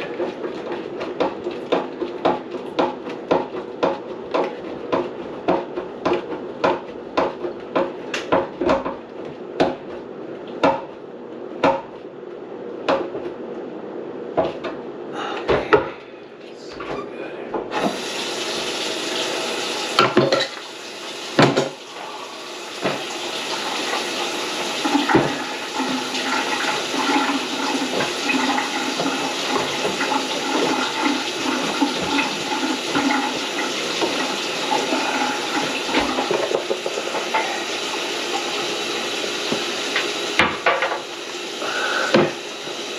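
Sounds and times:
sharp knocks at a sink: 10.6s - 10.9s, 11.6s - 11.9s, 21.4s - 21.8s
water gushing into a sink: 17.7s - 42.9s.

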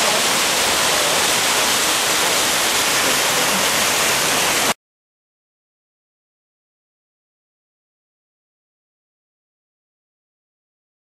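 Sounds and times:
breaking waves and whitewater: 0.0s - 4.8s.

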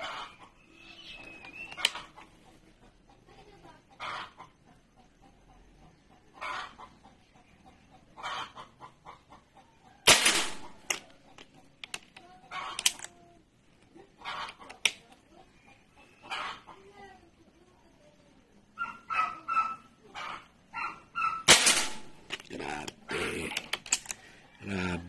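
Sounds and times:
air rifle shot crack: 10.1s - 11.0s, 21.5s - 22.3s.

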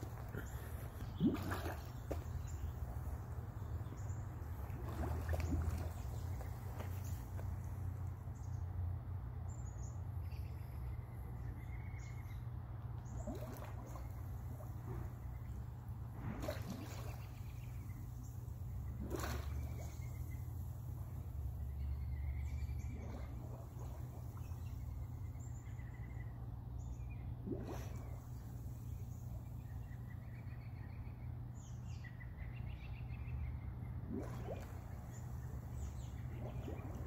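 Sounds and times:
water bubbling and splashing: 0.0s - 7.9s, 13.1s - 21.2s, 22.2s - 25.2s, 27.2s - 29.6s, 34.0s - 37.0s
birds chirping: 0.0s - 8.8s, 9.5s - 37.0s
steady low hum: 0.0s - 37.0s.

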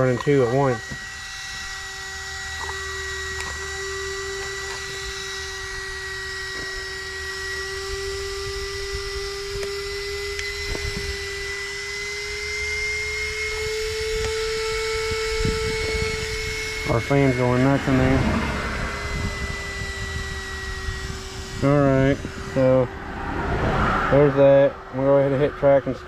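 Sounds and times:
cooling fan whining: 0.0s - 26.0s.

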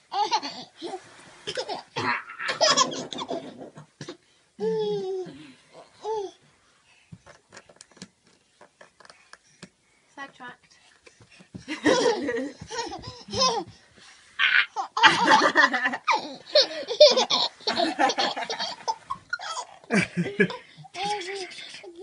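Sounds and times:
baby giggling: 11.9s - 13.7s.

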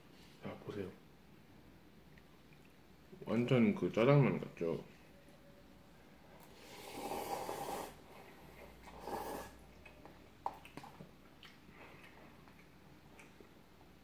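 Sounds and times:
noodles slurped: 6.5s - 12.6s.

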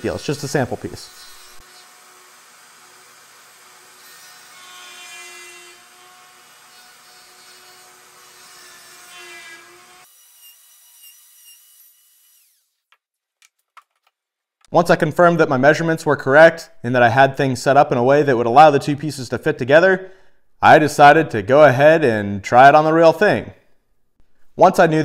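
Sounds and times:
router motor whining and cutting wood: 0.8s - 12.8s.

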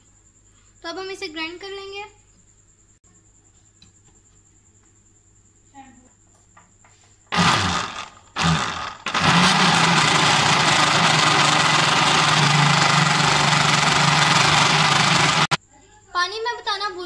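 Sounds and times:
mixer grinder running: 7.3s - 15.6s.

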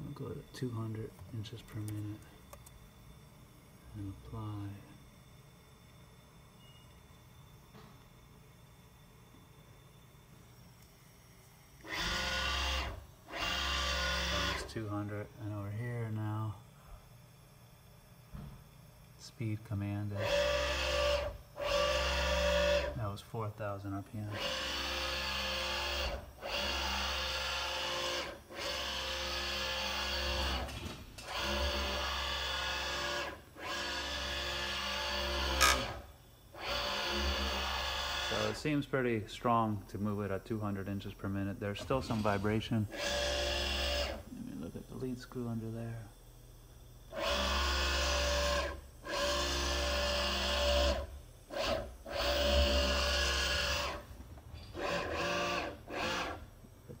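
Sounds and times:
servo motor whine: 11.8s - 15.6s, 20.1s - 23.0s, 24.3s - 38.6s, 41.8s - 44.7s, 47.1s - 57.0s
machine vibration: 46.6s - 57.0s.

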